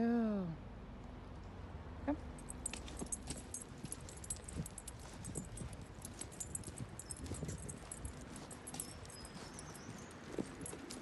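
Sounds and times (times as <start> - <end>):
dog harness clips jingling: 2.4 - 11.0
footsteps on paving stones: 2.6 - 11.0.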